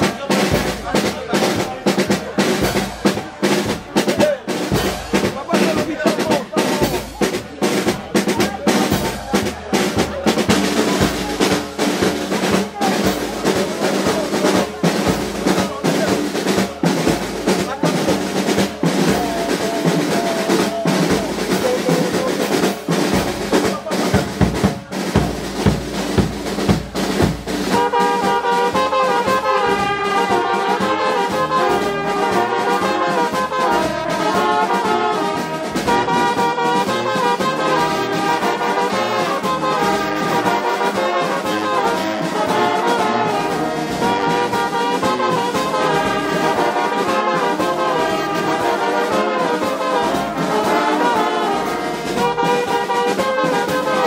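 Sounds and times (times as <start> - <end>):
brass band melody: 0.0 - 54.0
drums beating: 0.0 - 54.0.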